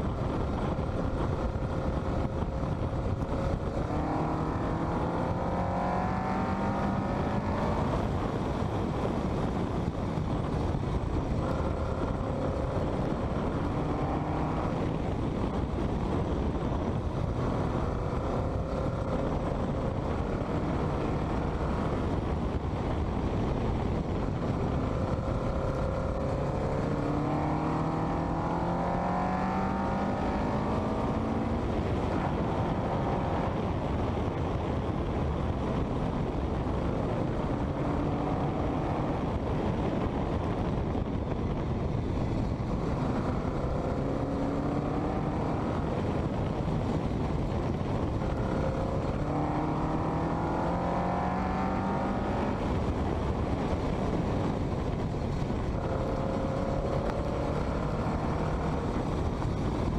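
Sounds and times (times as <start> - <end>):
wind rush on camera: 0.0 - 59.9
car engine revving: 1.5 - 8.2, 11.0 - 15.1, 24.4 - 33.6, 42.7 - 46.7, 47.3 - 53.0, 55.6 - 59.9.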